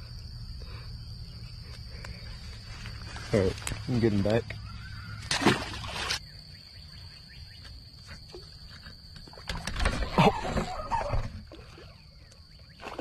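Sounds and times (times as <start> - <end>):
rustling of weeds and clothing: 2.3 - 3.9.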